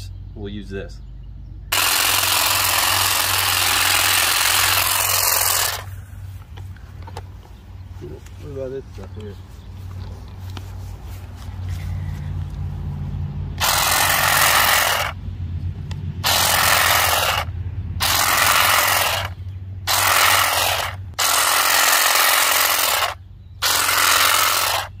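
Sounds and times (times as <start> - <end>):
grass shear motor cutting grass: 1.7 - 6.0, 13.5 - 15.2, 16.2 - 25.0.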